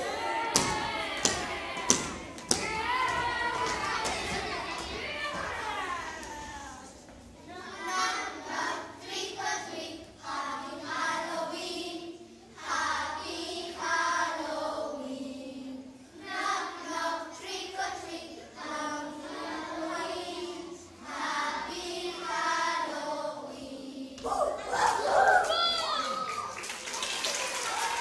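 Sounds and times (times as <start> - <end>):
children singing in unison: 7.5 - 24.3.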